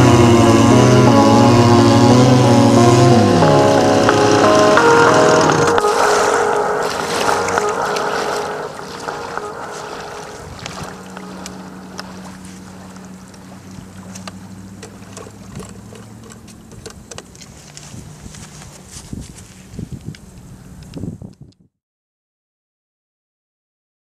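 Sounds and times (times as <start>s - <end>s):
two-stroke engine idling: 0.0s - 6.2s
music: 0.0s - 13.0s.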